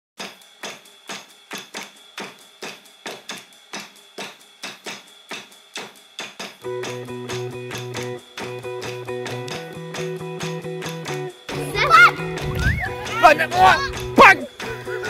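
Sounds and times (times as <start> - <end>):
guitar music: 6.6 - 15.0.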